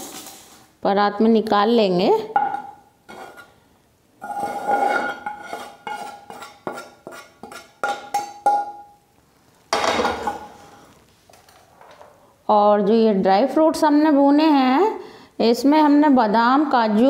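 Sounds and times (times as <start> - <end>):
metal spatula scraping a pan: 3.1 - 3.6, 4.2 - 8.6
knocks on steel bowl ringing: 7.8 - 9.0.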